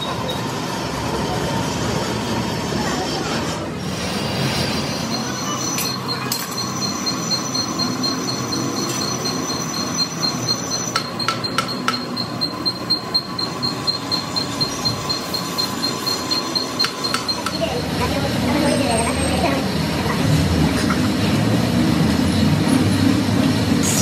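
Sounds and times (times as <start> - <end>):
metalworking machine rumbling: 0.0 - 24.0
pulsing high tone: 4.6 - 19.0.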